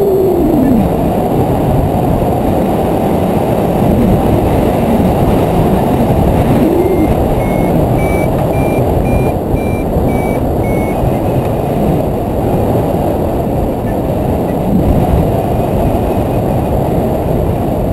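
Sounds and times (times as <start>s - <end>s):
wind rushing over microphone: 0.0s - 17.9s
variometer high beeps: 6.6s - 11.0s.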